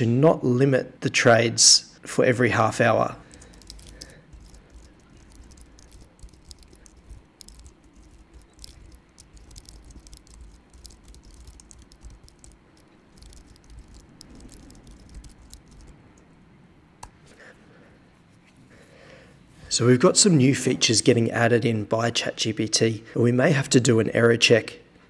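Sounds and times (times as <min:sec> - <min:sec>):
computer keyboard key clicks: 0:03.3 - 0:15.9.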